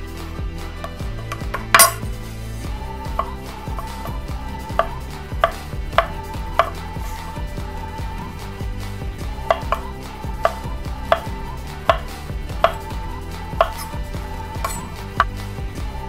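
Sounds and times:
knife chopping on wooden board: 3.2s - 7.2s, 9.5s - 13.0s, 13.6s - 14.0s, 14.6s - 15.4s.

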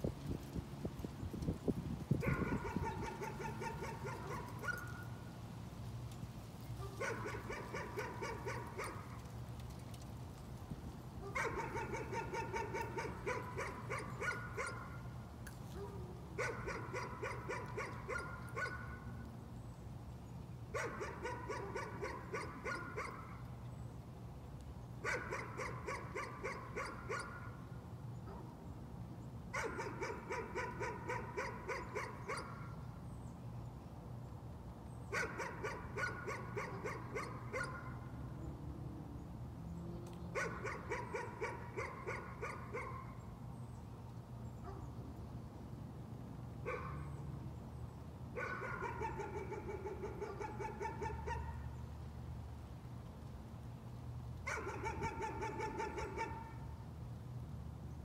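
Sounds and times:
dog barking: 2.2s - 5.0s, 6.8s - 9.1s, 11.2s - 15.0s, 15.8s - 19.0s, 20.8s - 23.4s, 25.0s - 27.5s, 29.6s - 32.7s, 35.1s - 38.0s, 40.4s - 43.2s, 46.7s - 47.1s, 48.4s - 51.7s, 54.5s - 56.6s.

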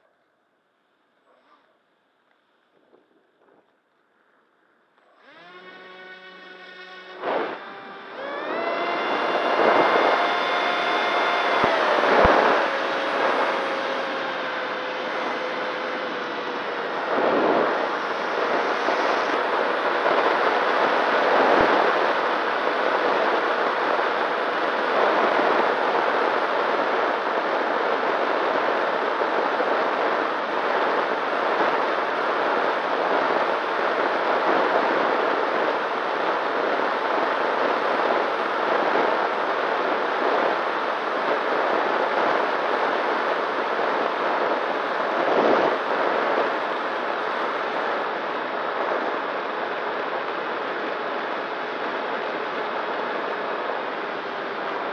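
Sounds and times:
electric propeller motor hum: 4.9s - 27.8s
wind rushing over camera: 5.2s - 54.9s.

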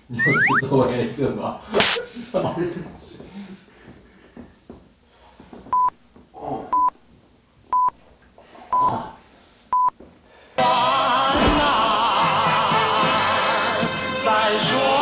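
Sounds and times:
short electronic beeps: 0.1s - 0.7s.

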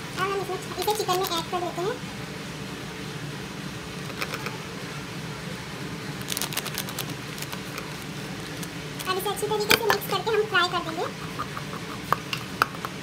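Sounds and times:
steady low hum: 0.0s - 13.0s
plastic packet crinkling: 6.2s - 10.1s.

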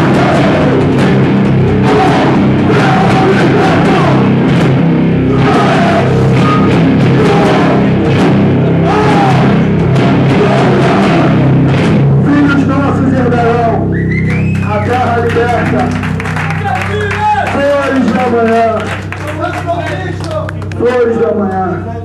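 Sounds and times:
drum hits: 0.0s - 12.4s
hardcore band playing live: 0.0s - 21.7s.

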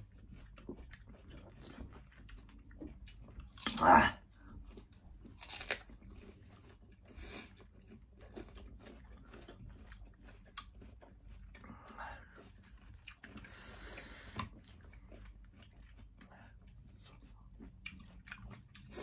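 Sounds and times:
apple crunching: 4.8s - 6.7s
chewing clicks: 7.8s - 11.6s.

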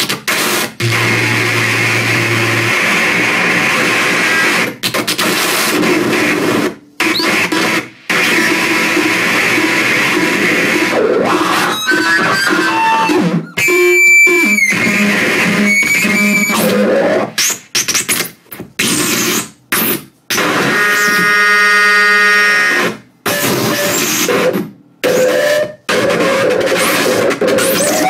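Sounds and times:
harsh electronic noise music: 0.0s - 17.6s, 22.5s - 28.0s
harsh buzzing drone: 0.6s - 5.0s
squealing tones: 0.8s - 4.5s, 10.9s - 17.6s.

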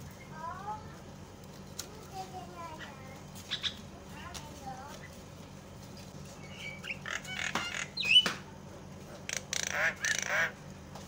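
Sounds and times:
bird chattering: 2.7s - 3.9s, 6.4s - 8.4s, 9.2s - 10.6s
harsh rasping bird call: 6.4s - 8.3s, 9.3s - 10.6s.

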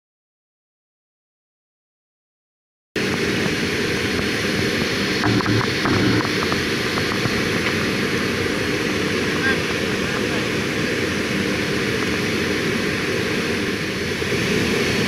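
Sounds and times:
faint steady whine: 3.0s - 15.0s
jet engine cabin rumble: 3.0s - 15.0s.

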